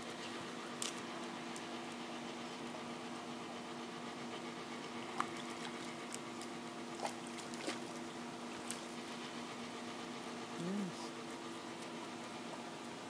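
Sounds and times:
water trickling and splashing: 5.1s - 9.0s.

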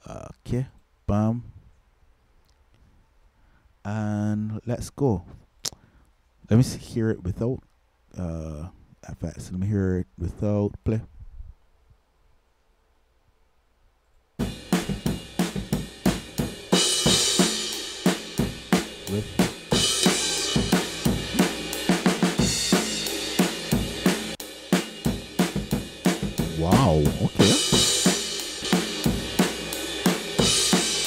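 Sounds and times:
drum kit groove: 14.4s - 31.0s.

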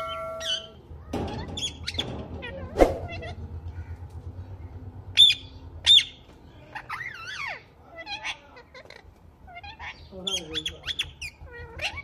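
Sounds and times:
parakeet warbling and chattering: 6.7s - 12.0s.

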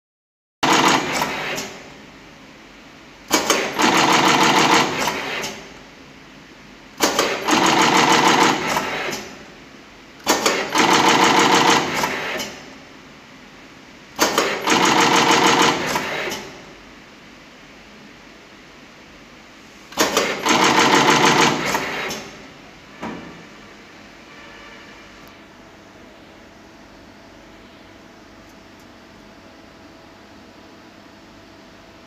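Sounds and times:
machine clack: 0.6s - 1.8s, 3.3s - 5.7s, 7.0s - 9.4s, 10.2s - 12.6s, 14.2s - 16.6s, 19.9s - 22.4s
rapid mechanical clatter: 0.6s - 1.8s, 3.3s - 5.7s, 7.0s - 9.4s, 10.2s - 12.6s, 14.2s - 16.6s, 19.9s - 22.4s.

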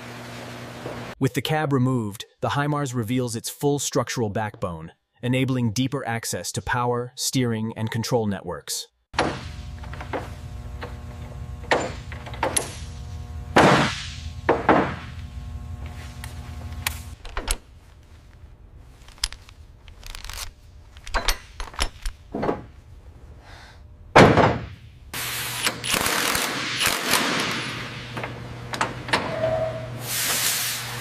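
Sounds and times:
low steady hum: 9.2s - 25.2s
wrenches clanking on metal: 19.2s - 22.6s.

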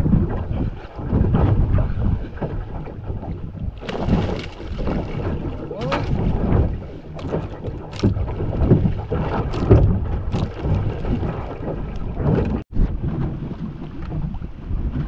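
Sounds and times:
water lapping at boat hull: 0.0s - 15.0s
wind buffeting microphone: 0.0s - 15.0s
sharp splashes of fish: 3.8s - 12.4s.

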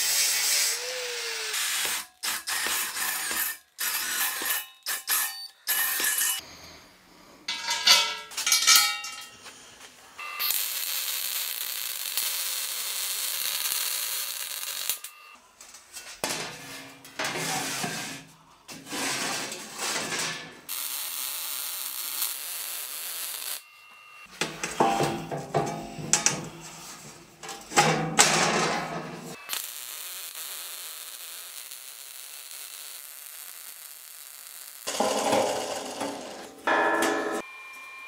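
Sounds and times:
welding arc hissing: 0.0s - 6.4s, 10.4s - 15.2s, 20.7s - 23.6s, 29.3s - 36.7s
metal knocks and clatters: 7.5s - 9.4s, 24.4s - 26.6s, 27.4s - 29.4s, 34.9s - 37.4s.

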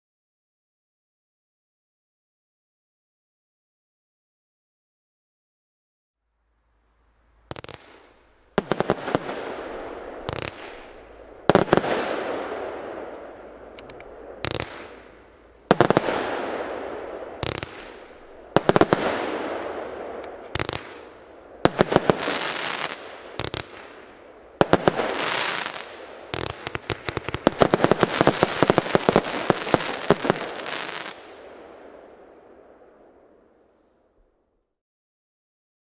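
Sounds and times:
fireworks cake firing: 7.5s - 32.4s.

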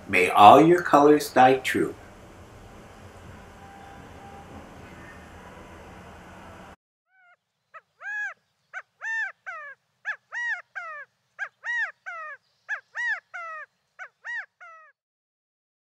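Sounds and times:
animal calls rising and falling: 7.1s - 14.9s.

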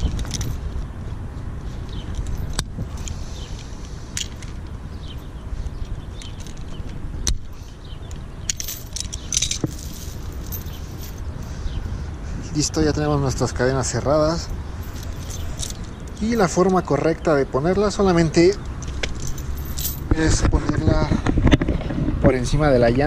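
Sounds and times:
chain links clinking: 0.0s - 0.8s, 1.8s - 11.8s, 14.2s - 16.9s, 18.2s - 20.1s
steady low rumble: 0.0s - 23.0s.

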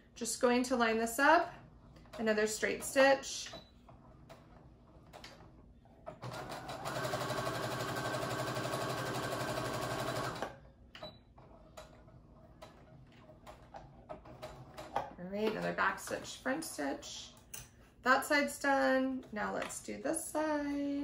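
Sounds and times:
electric sewing machine stitching: 6.2s - 10.6s.

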